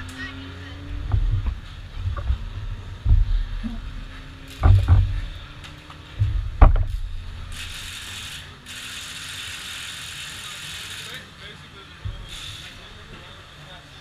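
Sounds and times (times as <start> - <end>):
low wind rumble: 0.0 - 8.1
steady hiss: 1.0 - 14.0.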